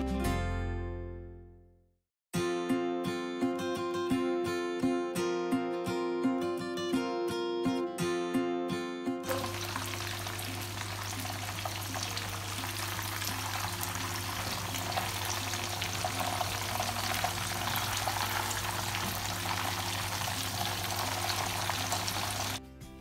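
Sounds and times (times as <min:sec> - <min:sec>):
chicken sizzling in oil: 0:09.3 - 0:22.6.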